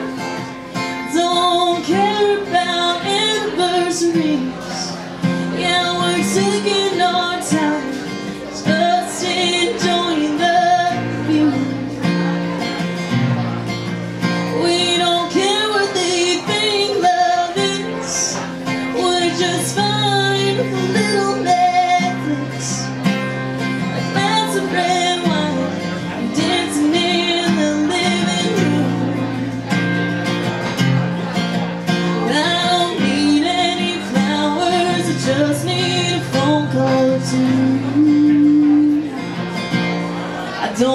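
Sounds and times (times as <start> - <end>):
guitar: 0.0 - 40.9
woman singing country song: 0.0 - 40.9.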